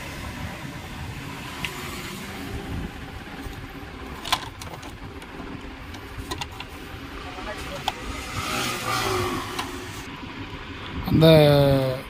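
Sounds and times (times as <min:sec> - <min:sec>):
plastic clicks and knocks: 0:05.9 - 0:06.7.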